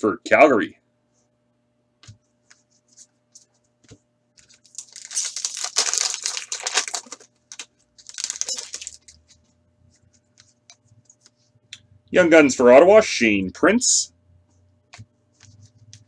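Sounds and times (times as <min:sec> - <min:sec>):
foil wrapper crinkling: 0:04.4 - 0:09.4.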